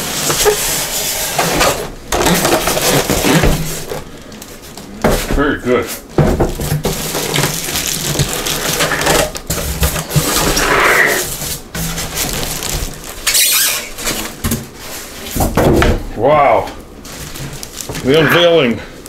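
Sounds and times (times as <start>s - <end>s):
foam blocks scraping: 0.0s - 4.0s, 6.8s - 15.5s
plastic wrap crinkling: 1.6s - 5.0s, 6.0s - 15.2s, 16.8s - 18.6s.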